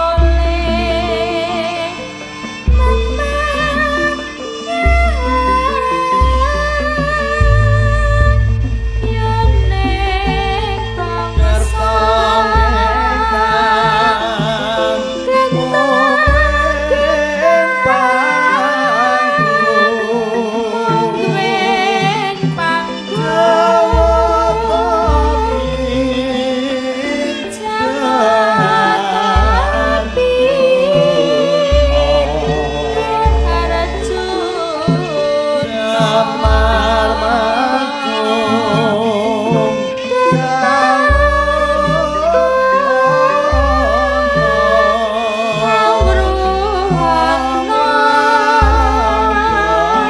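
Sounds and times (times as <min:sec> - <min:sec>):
gamelan accompaniment: 0:00.0 - 0:50.0
woman singing ornamented melody: 0:00.0 - 0:50.0
deep low stroke: 0:05.1 - 0:18.7
deep low note: 0:06.2 - 0:14.8.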